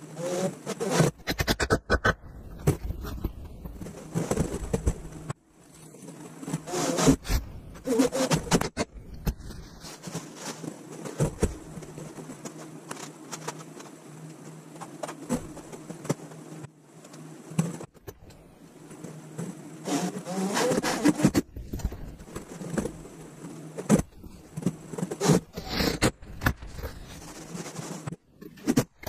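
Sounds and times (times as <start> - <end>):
wooden boards knocking and scraping: 8.0 - 13.9.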